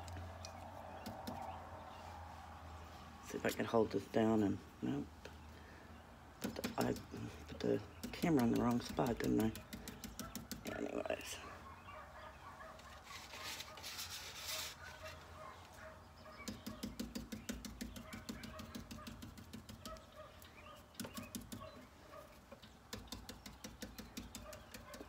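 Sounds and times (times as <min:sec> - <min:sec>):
brush dabbing taps: 0:06.4 - 0:10.9, 0:16.4 - 0:20.1, 0:22.5 - 0:25.0.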